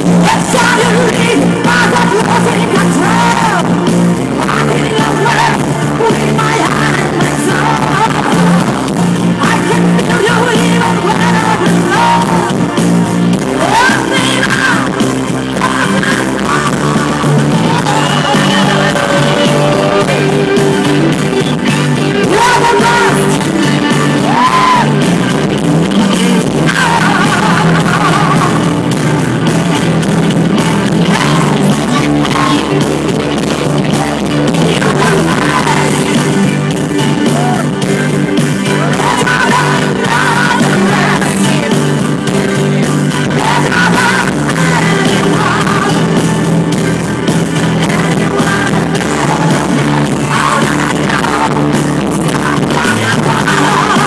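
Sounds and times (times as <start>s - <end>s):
woman singing into microphone: 0.0s - 12.6s, 13.5s - 25.0s, 30.8s - 32.8s, 34.5s - 36.6s, 38.6s - 46.4s, 47.6s - 54.0s
loud backing music: 0.0s - 54.0s.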